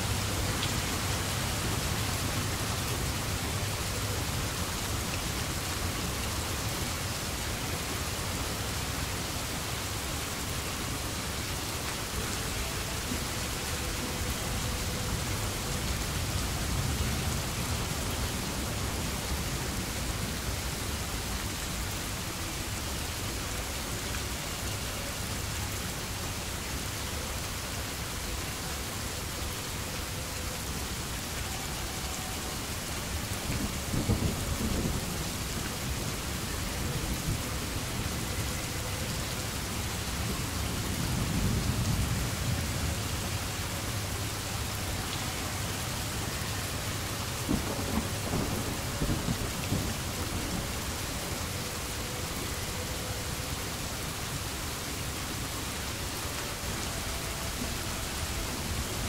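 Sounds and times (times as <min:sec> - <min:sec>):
steady rain hiss: 0:00.0 - 0:59.0
low thunder rumbles: 0:33.5 - 0:35.8, 0:47.4 - 0:51.1.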